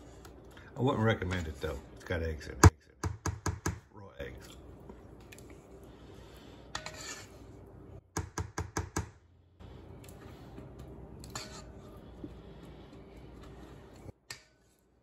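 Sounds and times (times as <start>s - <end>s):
spatula scraping metal bowl: 6.6s - 7.6s, 11.2s - 12.0s.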